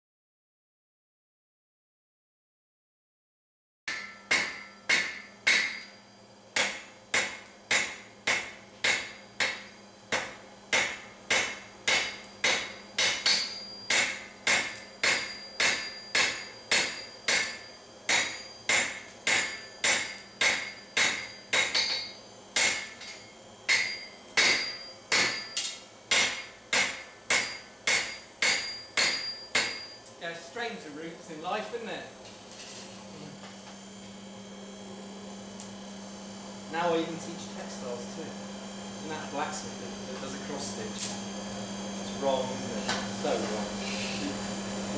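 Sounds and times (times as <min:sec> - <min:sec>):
hammer striking steel on anvil: 0:03.9 - 0:30.1.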